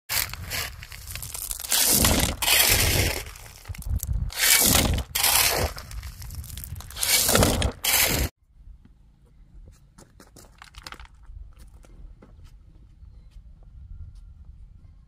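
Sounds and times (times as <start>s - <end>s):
footsteps on gravel: 0.1s - 8.3s
gravel poured into wheelbarrow: 0.1s - 8.3s.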